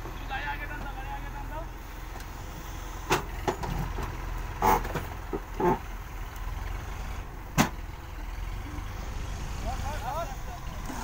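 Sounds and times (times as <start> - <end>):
diesel engine running under load: 0.0 - 11.0.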